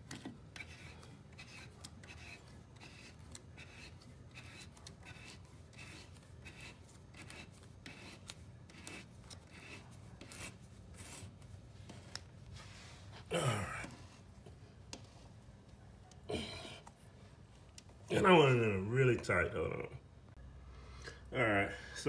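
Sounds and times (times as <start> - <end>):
metal threads scraping into wood: 0.0 - 11.4.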